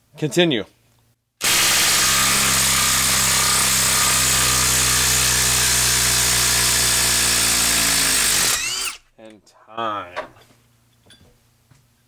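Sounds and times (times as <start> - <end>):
impact driver hammering: 1.4 - 9.0.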